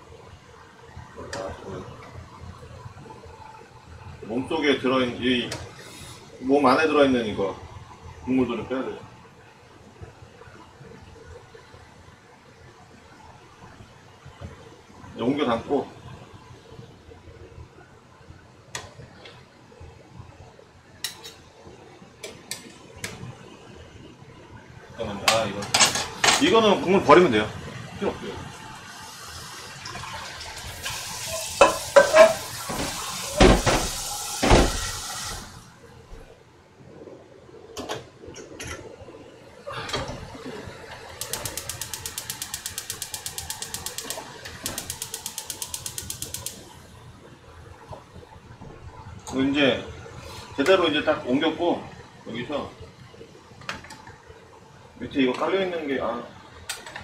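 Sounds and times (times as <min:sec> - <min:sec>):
utensils clinking against cookware: 0:31.2 - 0:33.8
rapid mechanical clicking: 0:41.2 - 0:46.7.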